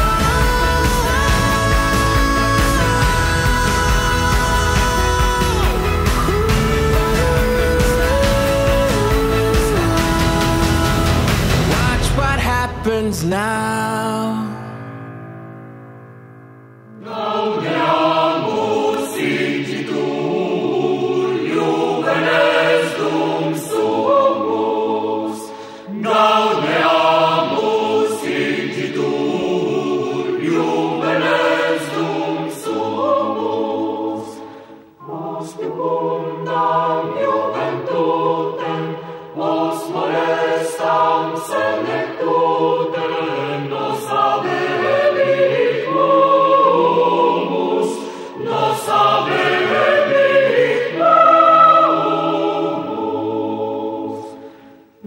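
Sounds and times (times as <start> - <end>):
choir singing in harmony: 0.0 - 12.8, 16.9 - 55.0.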